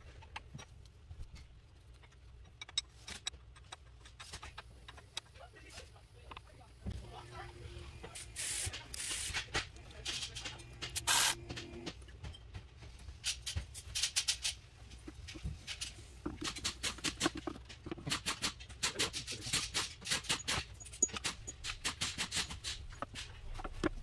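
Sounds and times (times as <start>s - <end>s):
hand tools clicking and clinking: 8.4s - 24.0s.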